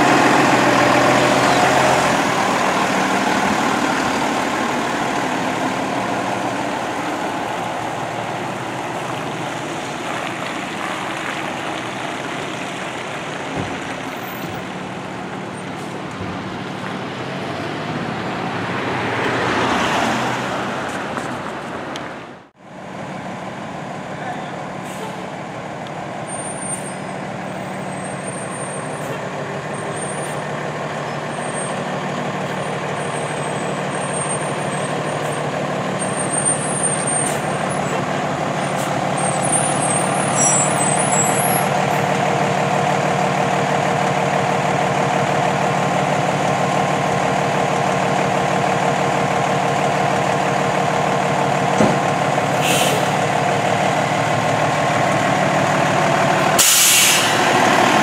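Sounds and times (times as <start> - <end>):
diesel engine running: 0.0 - 18.6, 22.2 - 58.0
air brake hiss: 52.6 - 53.2, 56.6 - 57.5.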